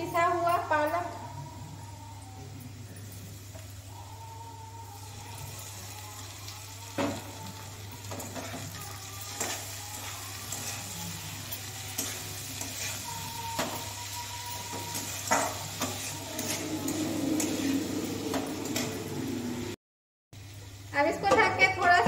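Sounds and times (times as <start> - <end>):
food sizzling in oil: 2.7 - 19.8
metal spatula scraping a pan: 8.0 - 19.1.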